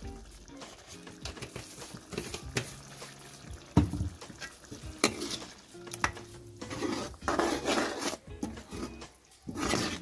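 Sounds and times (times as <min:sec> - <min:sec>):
light sizzle: 0:00.0 - 0:10.0
ladle scraping through mince: 0:04.4 - 0:10.0.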